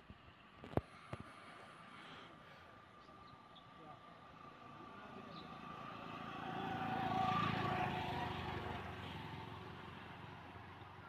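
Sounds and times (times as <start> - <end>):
engine passing by: 4.2 - 11.0.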